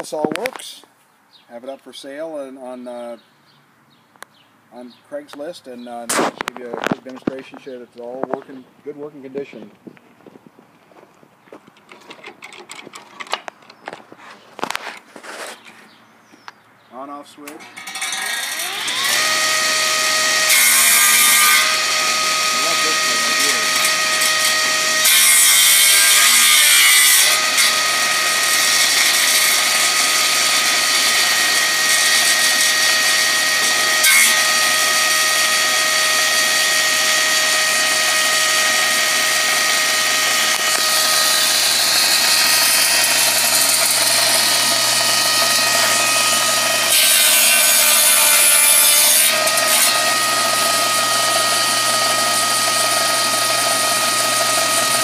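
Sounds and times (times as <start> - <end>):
saw blade cutting wood: 17.5 - 55.0
table saw whining: 17.6 - 55.0.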